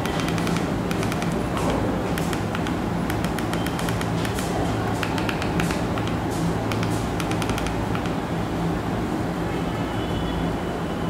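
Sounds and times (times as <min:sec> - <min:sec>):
remote buttons clicking: 0:00.0 - 0:08.2.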